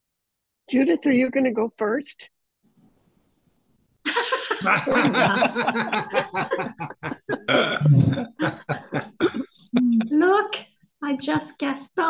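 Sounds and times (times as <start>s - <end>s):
people laughing hard: 4.1s - 10.2s
low rough vocal sound: 7.3s - 10.2s.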